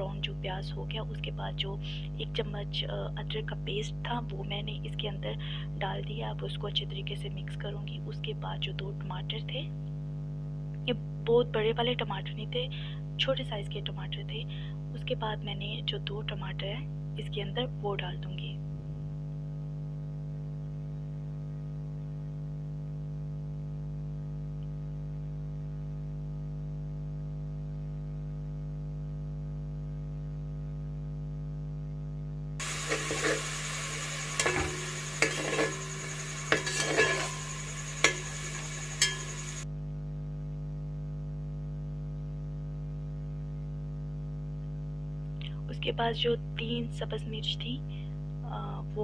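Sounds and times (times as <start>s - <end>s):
electrical hum: 0.0s - 26.0s, 32.2s - 49.0s
spatula scraping metal pot: 32.6s - 39.6s.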